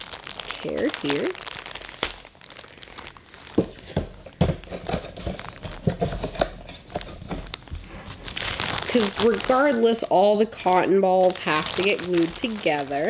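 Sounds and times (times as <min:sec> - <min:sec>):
plastic bag crinkling: 0:00.0 - 0:13.0
soft knocks and thumps: 0:03.6 - 0:07.5.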